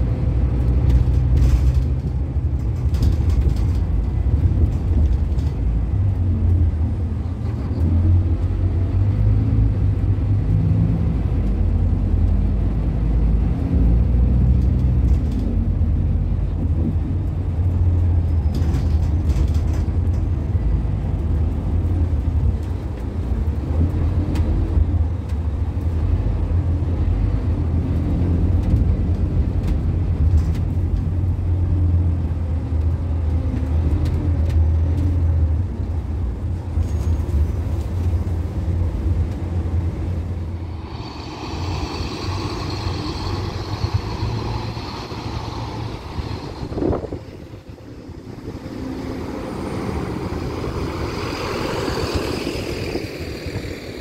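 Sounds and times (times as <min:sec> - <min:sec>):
bus diesel engine rumbling: 0:00.0 - 0:54.0.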